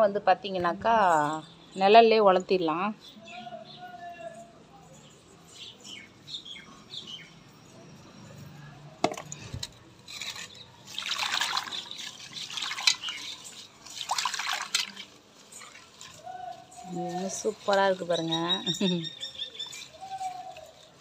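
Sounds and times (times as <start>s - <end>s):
hand splashing water in a pot: 10.2s - 16.2s.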